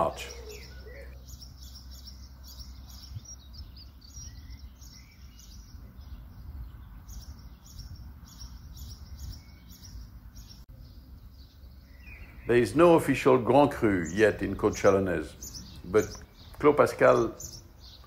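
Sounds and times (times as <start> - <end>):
small birds chirping: 0.0 - 18.0.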